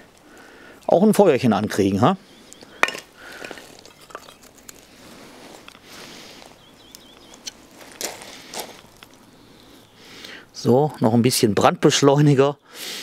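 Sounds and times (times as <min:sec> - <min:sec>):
outdoor rustling: 0:00.0 - 0:13.0
scuffs: 0:07.4 - 0:08.9.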